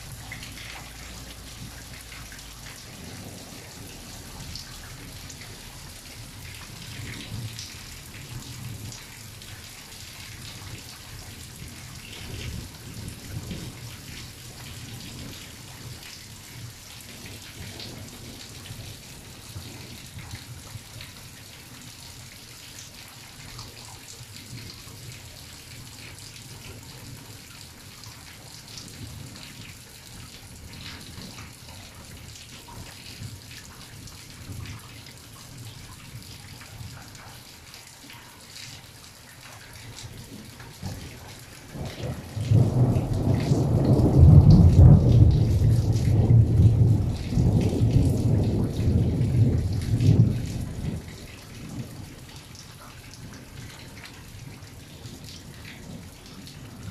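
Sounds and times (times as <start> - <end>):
rain pattering: 0.0 - 56.9
thunder rumbling: 41.8 - 52.1.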